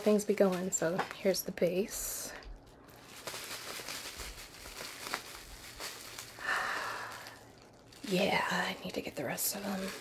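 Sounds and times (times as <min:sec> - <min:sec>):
packaging rustling: 0:02.6 - 0:10.0.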